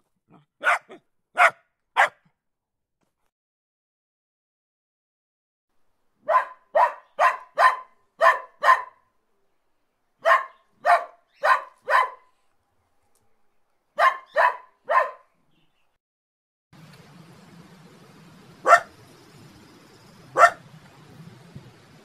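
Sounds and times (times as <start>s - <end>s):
dog barking: 0.3s - 2.3s, 6.2s - 9.1s, 10.2s - 12.4s, 14.0s - 15.3s, 18.6s - 18.9s, 20.3s - 20.6s.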